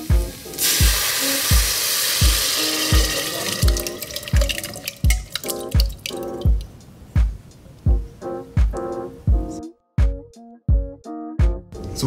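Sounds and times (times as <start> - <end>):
hissing sizzle in saucepan: 0.0 - 4.5
background music with steady beat: 0.0 - 12.0.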